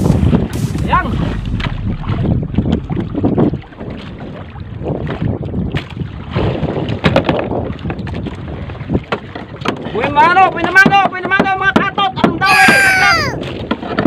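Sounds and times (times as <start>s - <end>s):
water lapping against boat: 0.0s - 14.0s
wind buffeting microphone: 0.0s - 14.0s.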